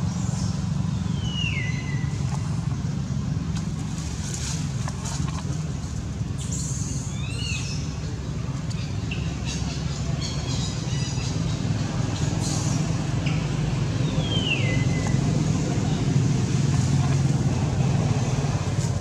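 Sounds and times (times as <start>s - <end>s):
low motor rumble: 0.0s - 19.0s.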